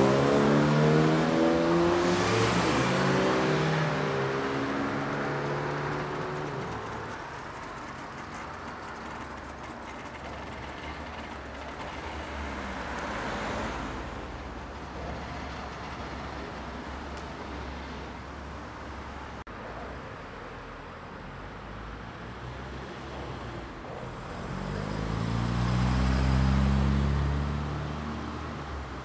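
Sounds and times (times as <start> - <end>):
tyre noise: 1.0 - 13.6
two-stroke engine running: 4.2 - 12.8
car driving past: 22.3 - 28.7.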